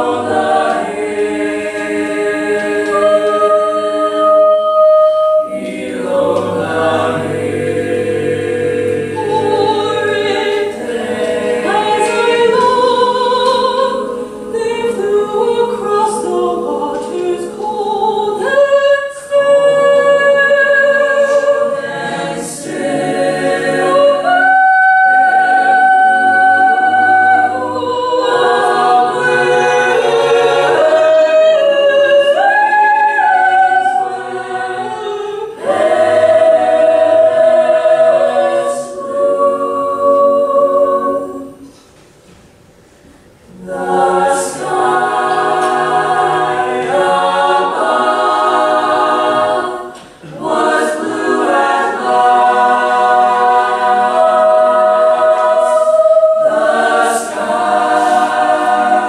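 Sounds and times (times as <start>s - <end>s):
soprano soloist singing: 0.0s - 41.8s
mixed choir singing a cappella: 0.0s - 42.0s, 43.2s - 59.0s.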